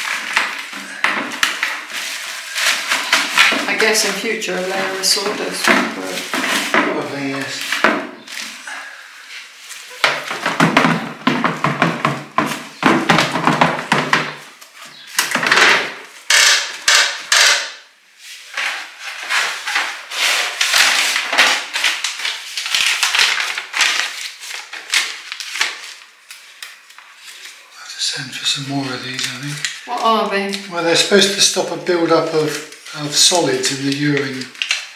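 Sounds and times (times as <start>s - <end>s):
plastic bag rustling: 0.0s - 34.9s
plastic knocking on plastic: 5.2s - 7.0s, 10.0s - 17.6s.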